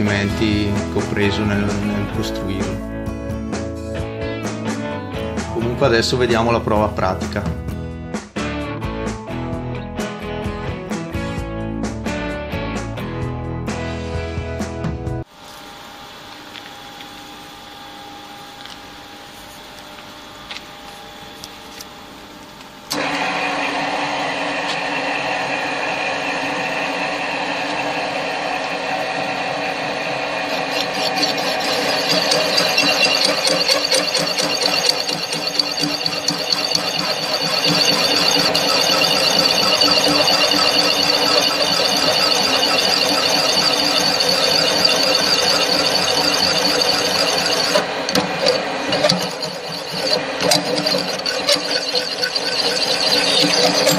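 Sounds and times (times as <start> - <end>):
metal cutter squealing: 29.7 - 53.9.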